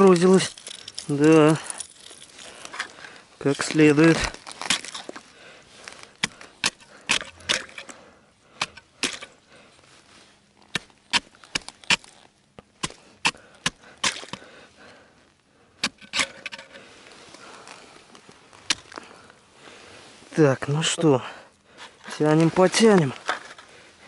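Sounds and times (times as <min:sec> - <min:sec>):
ice chisel chopping ice: 0:04.1 - 0:05.1, 0:06.2 - 0:07.9, 0:08.6 - 0:09.3, 0:10.7 - 0:12.2, 0:12.8 - 0:14.5.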